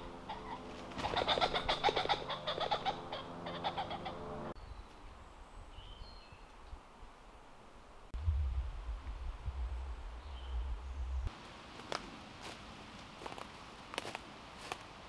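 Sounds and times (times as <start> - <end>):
birds calling and singing: 0.0 - 6.8.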